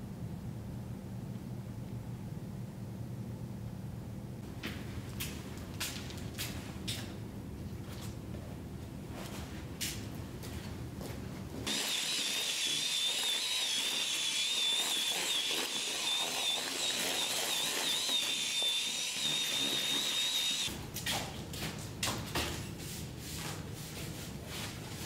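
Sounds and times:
electric drill mixing paddle whine: 11.7s - 20.7s.

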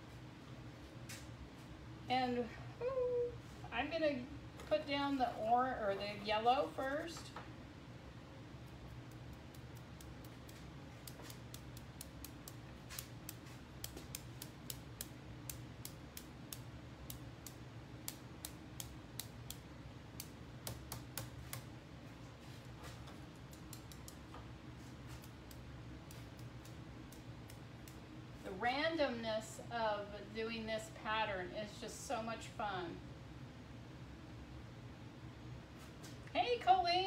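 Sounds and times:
low steady hum: 0.0s - 37.0s
brush tapping light clicks: 8.9s - 21.7s, 23.4s - 24.4s.

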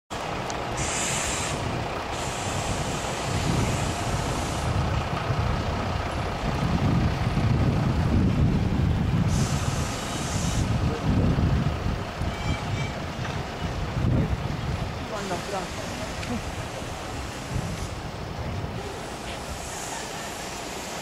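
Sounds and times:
wind buffeting microphone: 0.3s - 20.0s
high hiss: 0.7s - 4.8s, 9.3s - 10.8s, 18.8s - 21.0s.

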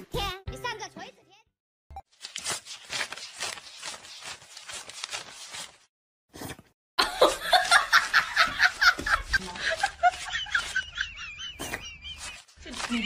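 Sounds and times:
laughter-like burst: 7.0s - 12.5s.

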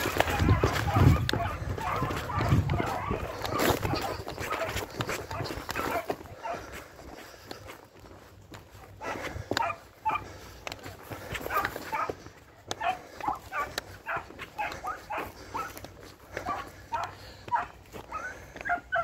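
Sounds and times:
hound yelping bays: 0.0s - 6.7s, 9.6s - 10.4s, 11.5s - 12.2s, 12.8s - 19.0s.

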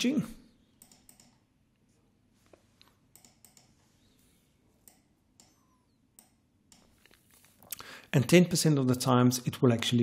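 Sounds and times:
computer mouse clicks: 0.8s - 1.4s, 2.8s - 3.8s, 4.8s - 7.6s.

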